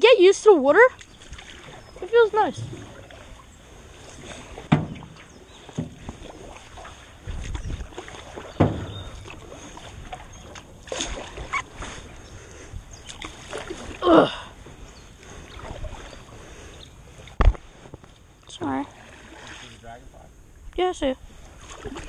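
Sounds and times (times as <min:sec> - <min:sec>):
paddle strokes and splashes: 0:00.9 - 0:20.1, 0:21.2 - 0:22.0
paddle knocking against canoe: 0:02.5 - 0:03.5, 0:04.1 - 0:11.7.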